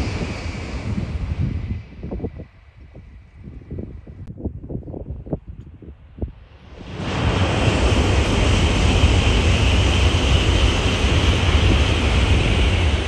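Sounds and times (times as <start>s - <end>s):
train passing at speed: 0.0s - 3.0s, 6.5s - 13.0s
low rumble: 0.0s - 13.0s.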